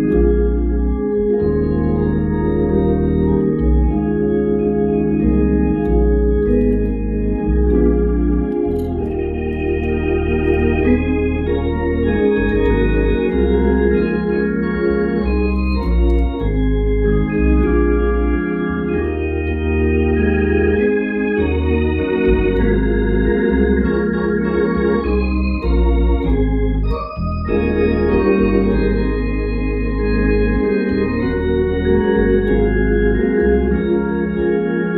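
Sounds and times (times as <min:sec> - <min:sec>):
organ playing worship music: 0:00.0 - 0:34.9.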